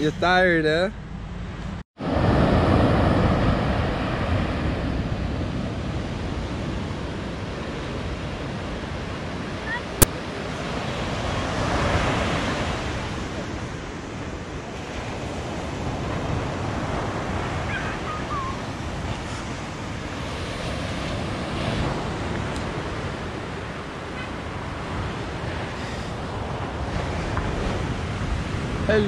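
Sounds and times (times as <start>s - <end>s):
ocean surf breaking on beach: 2.0s - 29.0s.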